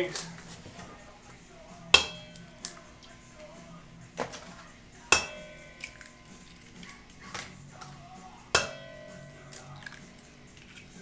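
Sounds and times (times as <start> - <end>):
eggs knocking on metal bowl: 2.0 - 2.8, 4.2 - 7.9, 8.5 - 10.1.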